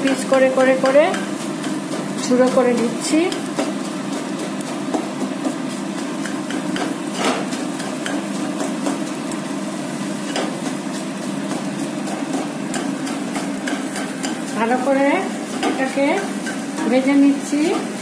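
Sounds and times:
eggs sizzling in oil: 0.0 - 18.0
metal spatula scraping a pan: 10.2 - 17.8.

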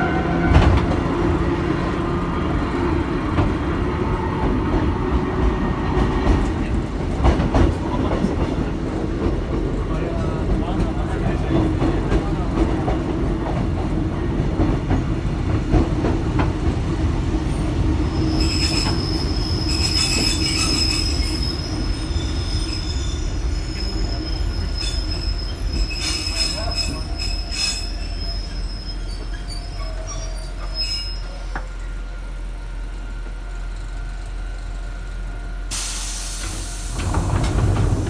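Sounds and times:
train wheels rumbling on rails: 0.0 - 38.0
high thin wheel squeal: 17.5 - 31.6.

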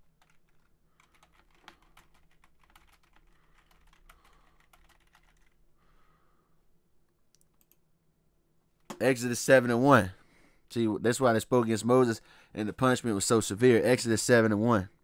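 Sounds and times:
typing on keyboard: 0.0 - 5.6.

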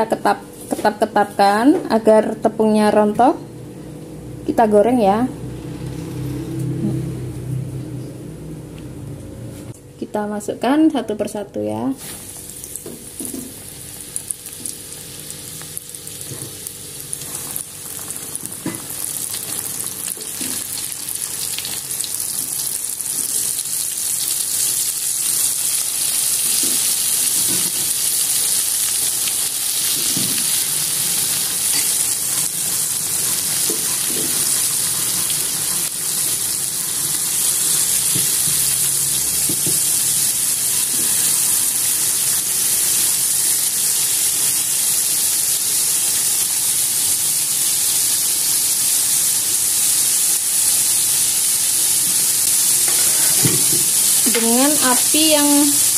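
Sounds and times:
shrimp sizzling in hot oil: 12.0 - 55.9.

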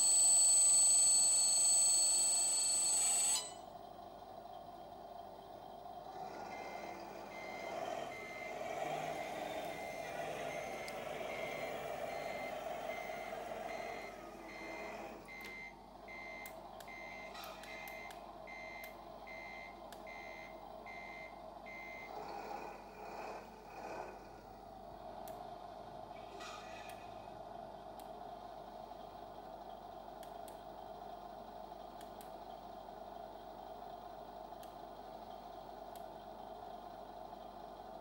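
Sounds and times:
reversing beeper: 0.0 - 3.6, 6.2 - 22.7.

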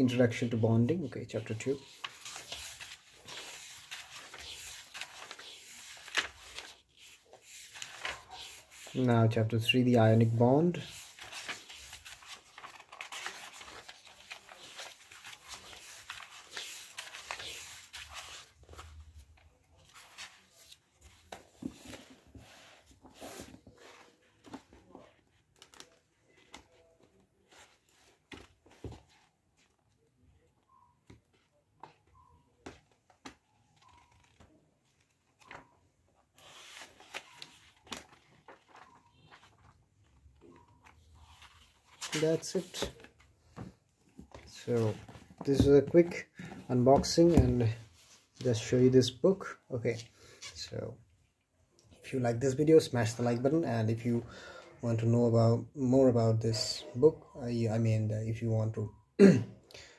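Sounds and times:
book pages turning: 0.5 - 29.9, 30.7 - 48.4.

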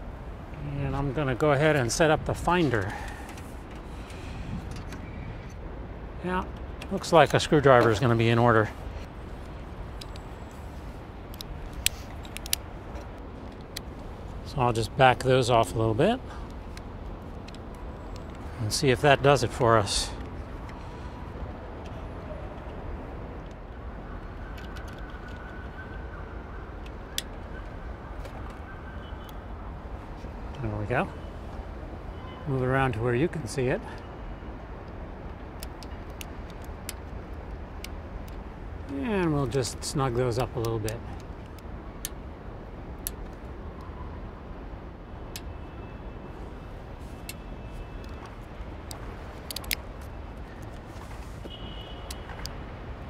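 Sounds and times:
outdoor background rumble: 0.0 - 25.6
small light clicks: 48.0 - 50.8.

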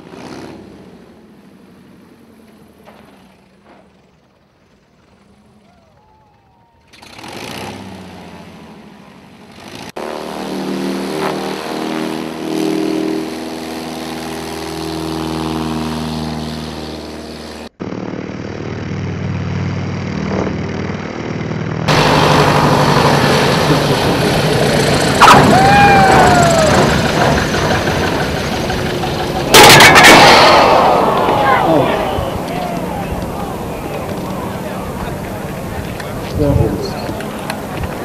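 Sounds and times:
small plane piston engines: 0.0 - 38.0
sharp crack: 29.5 - 34.3.

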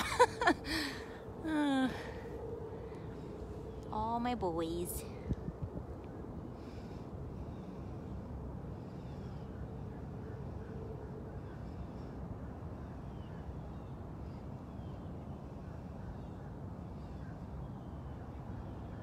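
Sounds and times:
steady low rumble: 0.0 - 13.1.

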